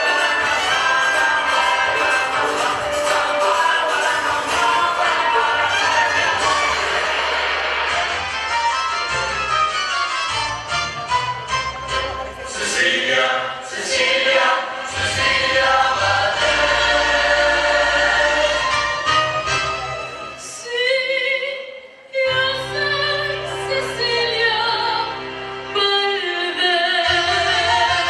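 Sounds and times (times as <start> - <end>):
youth choir singing: 0.0 - 7.8, 12.6 - 19.1
instrumental accompaniment: 0.0 - 20.5
low bass notes: 4.2 - 13.0.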